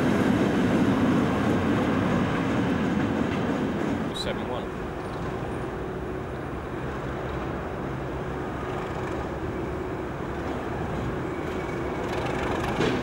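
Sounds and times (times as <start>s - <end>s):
diesel locomotive engine running: 0.0s - 13.0s.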